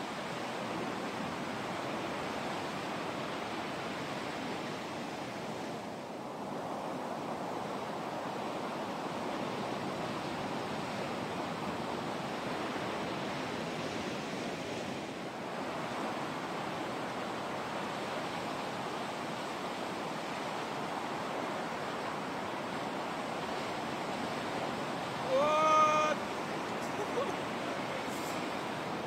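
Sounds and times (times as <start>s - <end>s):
waves breaking on beach: 0.0s - 29.0s.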